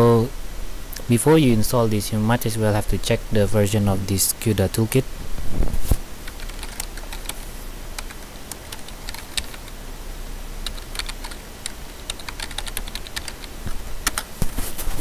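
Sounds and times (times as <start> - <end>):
keyboard keystrokes: 6.3 - 7.4, 8.0 - 9.8, 10.6 - 14.3.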